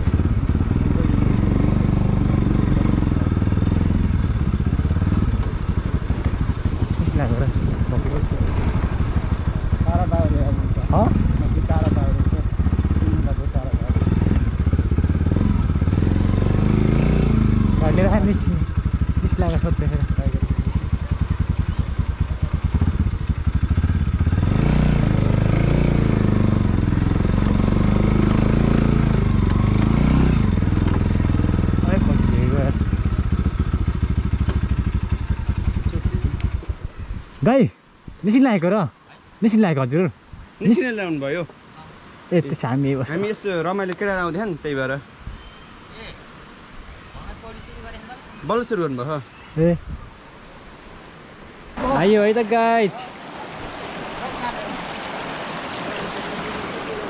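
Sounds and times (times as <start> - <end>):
motorcycle engine running: 0.0 - 37.3.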